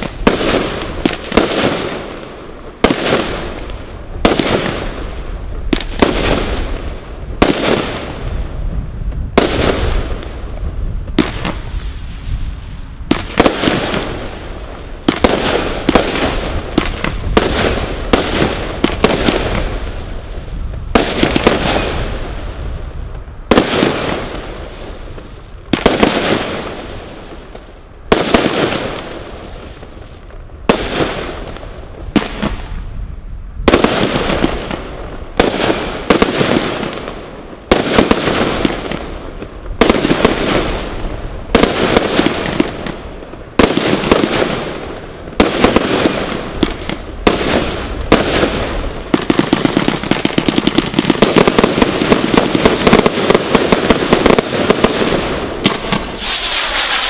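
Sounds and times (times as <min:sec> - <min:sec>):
roman candle firework bangs: 0:00.0 - 0:02.2, 0:02.8 - 0:05.0, 0:05.7 - 0:06.8, 0:07.4 - 0:08.2, 0:11.1 - 0:12.2, 0:13.0 - 0:20.0, 0:20.6 - 0:22.4, 0:23.5 - 0:24.5, 0:25.7 - 0:27.4, 0:28.1 - 0:29.3, 0:33.7 - 0:57.0.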